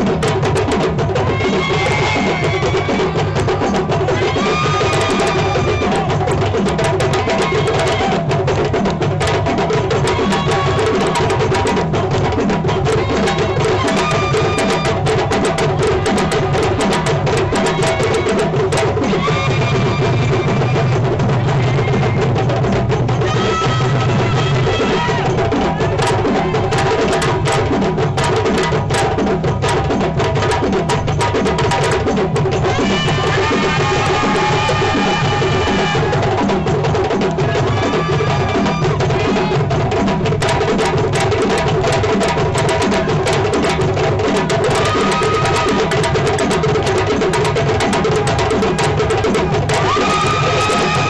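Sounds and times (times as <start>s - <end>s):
djembe drums playing: 0.0s - 51.0s.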